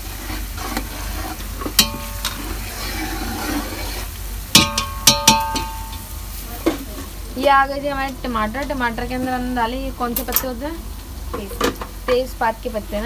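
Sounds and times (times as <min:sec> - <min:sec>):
onions sizzling in hot oil: 0:00.0 - 0:13.0
metal spoon knocking on pot: 0:01.8 - 0:02.4, 0:04.5 - 0:06.1.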